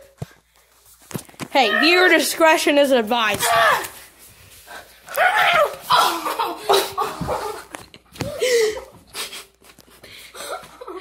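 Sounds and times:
boy yelling and shrieking: 1.6s - 2.1s, 3.4s - 4.0s, 5.1s - 6.4s.

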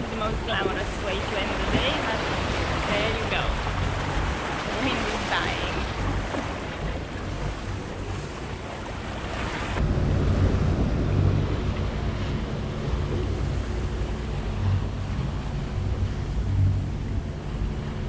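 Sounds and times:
low steady rumble: 0.0s - 18.0s
water rushing along hull: 0.0s - 18.0s
wind buffeting microphone: 0.0s - 18.0s.

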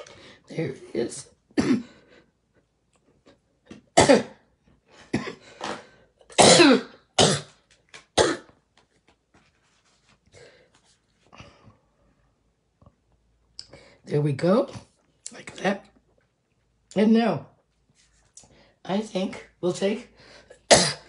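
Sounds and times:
woman coughing hoarsely: 1.6s - 1.9s, 4.0s - 4.4s, 6.4s - 7.5s, 20.7s - 21.0s.

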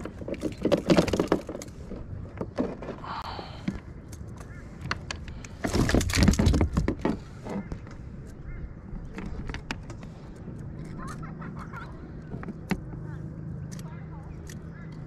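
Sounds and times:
knocks and rattles on plastic kayak: 0.0s - 3.2s, 5.6s - 8.0s.

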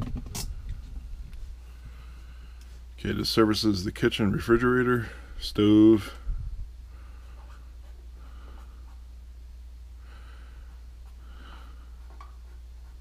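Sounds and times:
low electrical hum: 0.0s - 13.0s
slow breathing: 0.6s - 2.9s, 6.2s - 9.0s, 9.9s - 12.2s.

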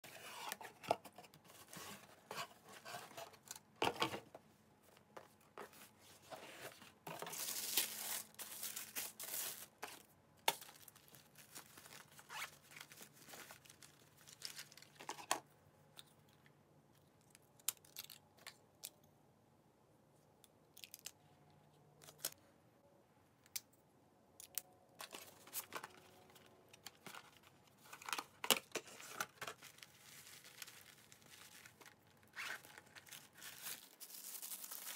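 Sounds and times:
tissue paper rustling: 5.6s - 10.0s, 10.6s - 14.8s, 29.0s - 34.9s.

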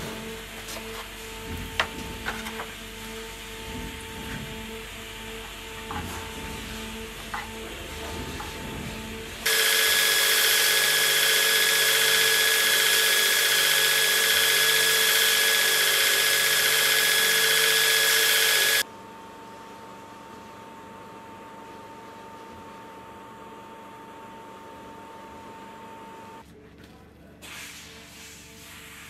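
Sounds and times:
belt grinder whine: 9.4s - 18.8s.

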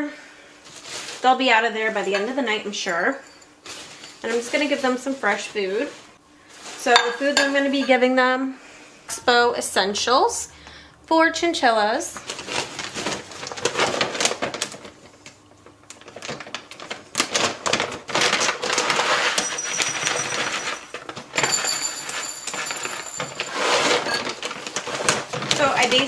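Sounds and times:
food pellets rattling into bowl: 18.3s - 26.0s.

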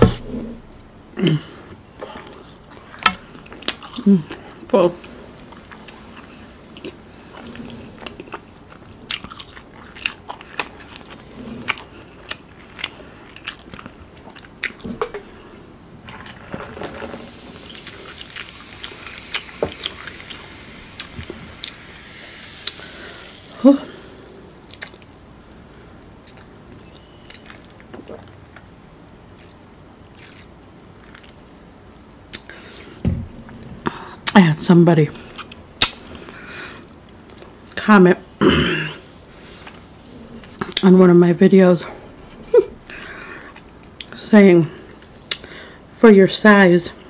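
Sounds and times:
chewing and biting food: 5.5s - 15.3s, 24.3s - 25.3s
soda poured into a glass fizzing: 16.6s - 24.7s.

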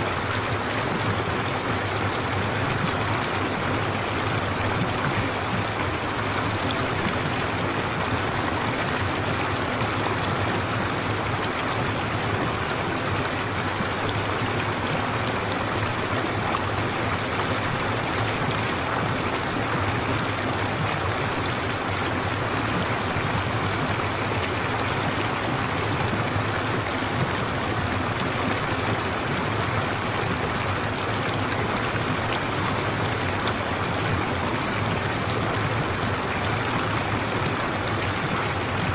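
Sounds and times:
running water: 0.0s - 38.9s.

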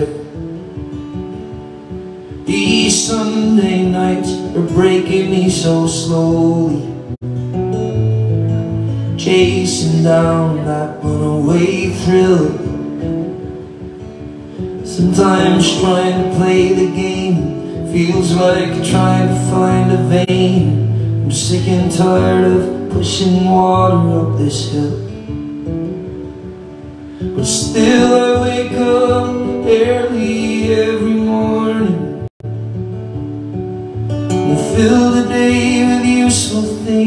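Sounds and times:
acoustic guitars strummed: 0.0s - 37.0s
person singing: 9.2s - 12.9s, 14.8s - 25.2s, 27.3s - 32.4s, 34.4s - 37.0s.

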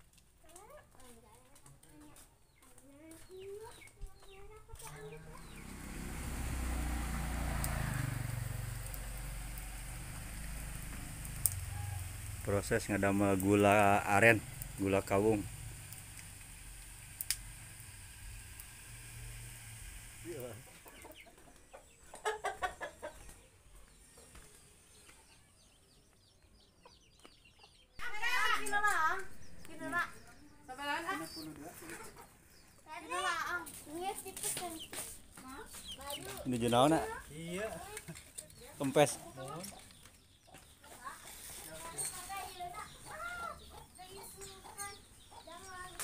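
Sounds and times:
chickens clucking: 20.3s - 24.5s, 28.5s - 33.4s, 34.0s - 46.0s.

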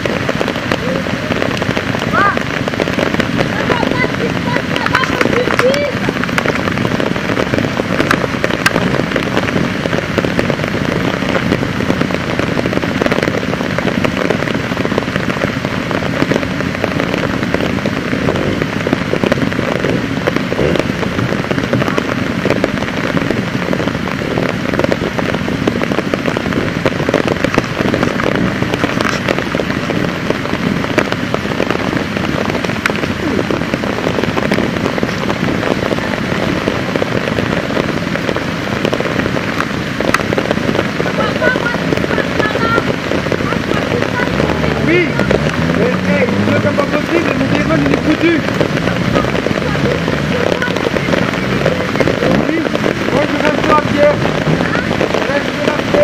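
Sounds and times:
torrential rain falling: 0.0s - 56.0s.

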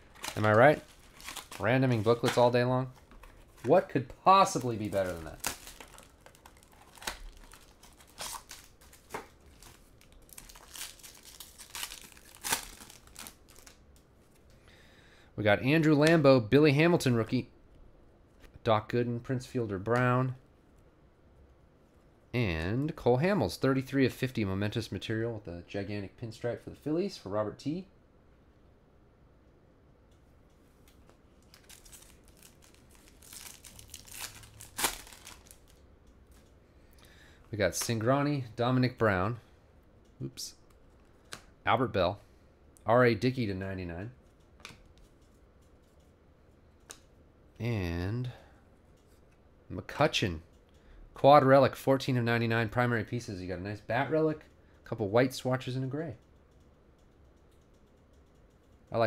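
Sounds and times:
plastic wrapper crinkling and tearing: 0.0s - 3.8s, 4.4s - 13.8s, 31.4s - 35.8s.

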